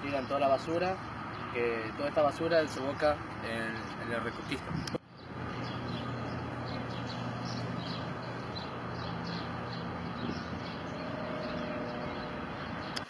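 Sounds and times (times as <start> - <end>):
low hum: 5.1 - 13.0.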